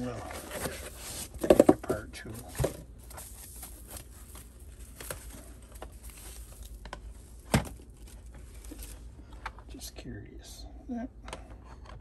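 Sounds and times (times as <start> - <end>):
wrapping rustling: 2.2 - 9.2.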